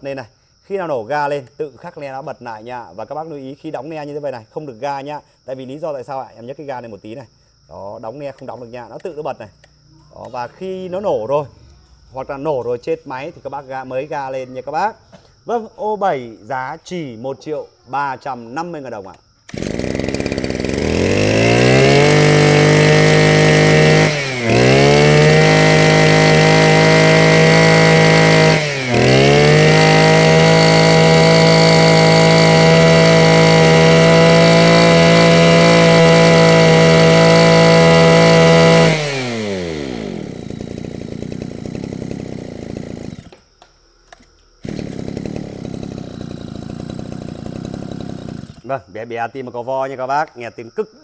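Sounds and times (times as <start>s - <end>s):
brush cutter engine revving: 19.1s - 43.5s, 44.1s - 48.7s.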